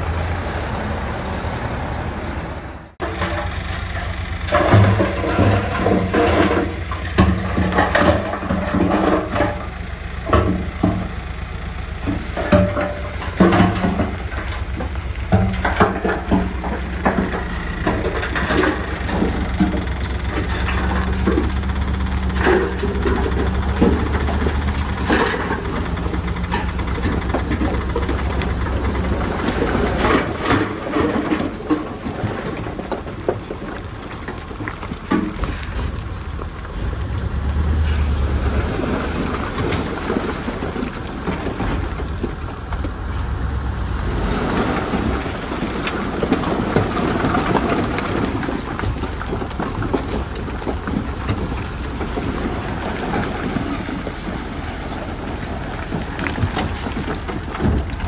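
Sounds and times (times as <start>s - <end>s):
large diesel engine droning: 0.0s - 58.0s
sharp metal knocks and clanks: 3.0s - 11.2s, 12.0s - 33.6s.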